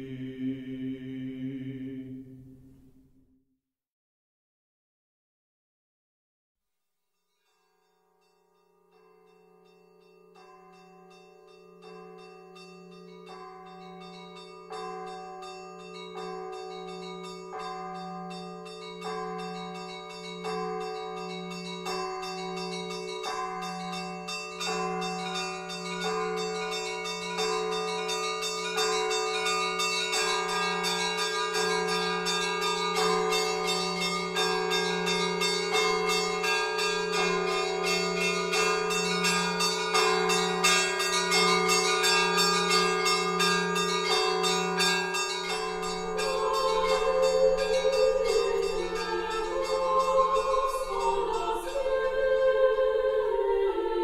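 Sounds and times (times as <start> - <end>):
small bells struck: 7.2 - 51.1
deep bell humming: 32.2 - 54.0.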